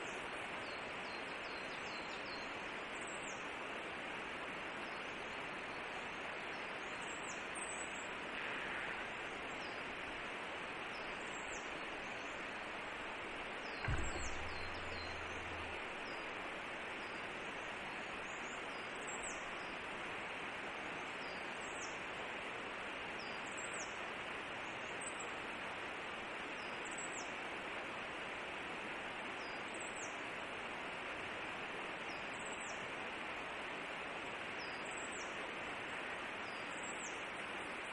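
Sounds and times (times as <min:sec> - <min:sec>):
forest background hiss: 0:00.0 - 0:37.9
low hum: 0:12.8 - 0:16.3
knock: 0:13.8 - 0:16.0.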